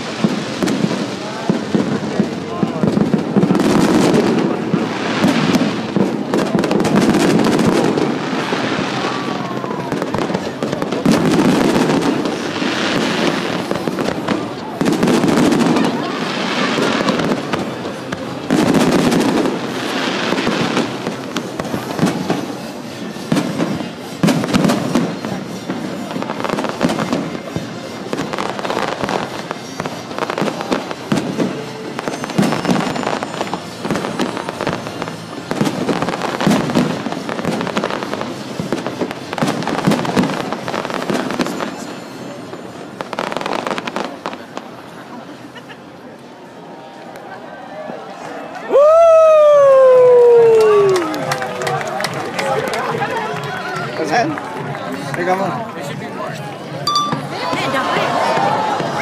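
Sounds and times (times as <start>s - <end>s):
fireworks bangs: 0.0s - 45.4s, 56.7s - 59.0s
fireworks crackling: 0.0s - 47.5s, 48.1s - 59.0s.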